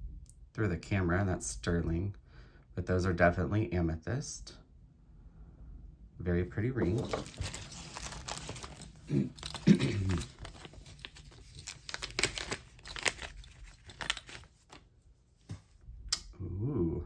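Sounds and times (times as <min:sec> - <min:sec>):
plastic bag crinkling: 0:06.8 - 0:14.9
mumbled voice: 0:16.3 - 0:17.0.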